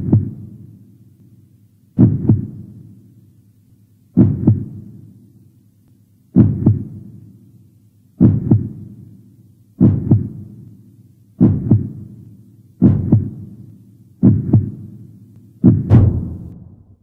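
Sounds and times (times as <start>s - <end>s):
heartbeat double thumps: 0.0s - 0.4s, 2.0s - 2.7s, 4.2s - 4.8s, 6.4s - 7.0s, 8.2s - 8.8s, 9.8s - 10.5s, 11.4s - 12.1s, 12.8s - 13.5s, 14.2s - 14.9s, 15.6s - 17.0s
low hum: 15.8s - 17.0s.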